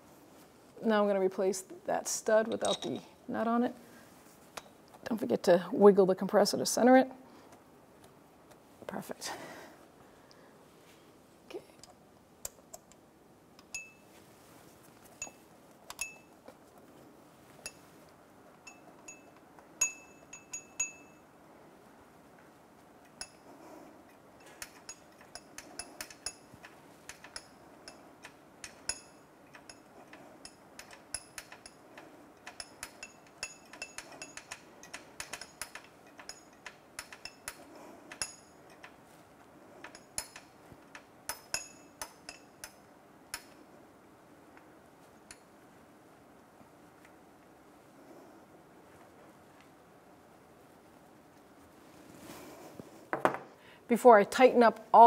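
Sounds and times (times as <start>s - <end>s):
metallic clicks of hand tools: 24.4s - 39.0s, 39.8s - 43.6s.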